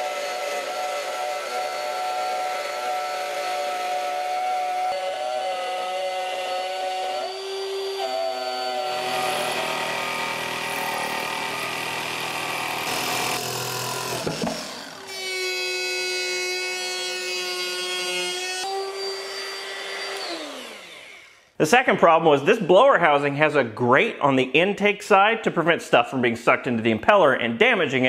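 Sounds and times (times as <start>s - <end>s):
jigsaw cutting: 0.0s - 21.5s
router cutting plywood: 0.0s - 21.5s
power tool winding down: 0.0s - 21.6s.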